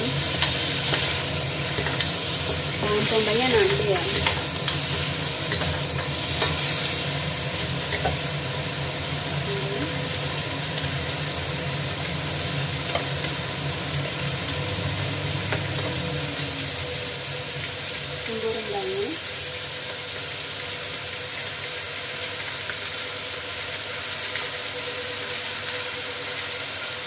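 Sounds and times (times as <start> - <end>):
meat and garlic sizzling in a wok: 0.0 - 27.0.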